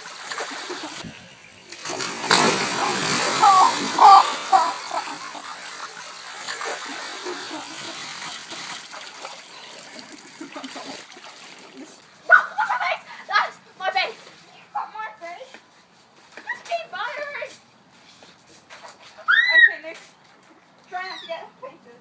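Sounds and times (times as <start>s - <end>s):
water splashing in a paddling pool: 0.0s - 12.8s.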